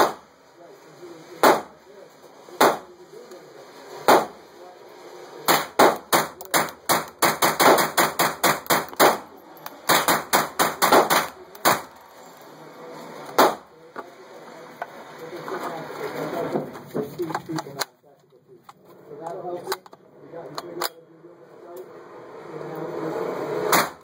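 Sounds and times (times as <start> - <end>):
rifle shots indoors: 5.5 - 9.2, 9.8 - 11.9.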